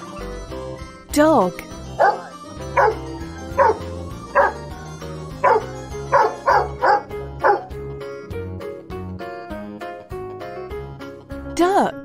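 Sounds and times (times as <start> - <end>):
background music: 0.0 - 12.0
dog barking: 2.0 - 4.6, 5.4 - 7.8.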